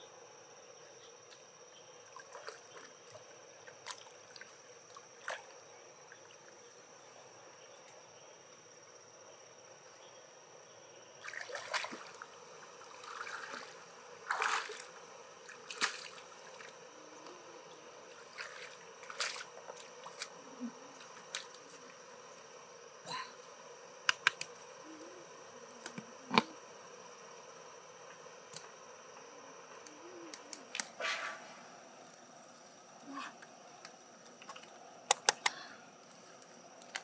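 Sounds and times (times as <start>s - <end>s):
water dripping and splashing: 18.2s - 20.3s
sharp clicks of mussel handling: 24.1s - 24.5s, 33.8s - 35.6s.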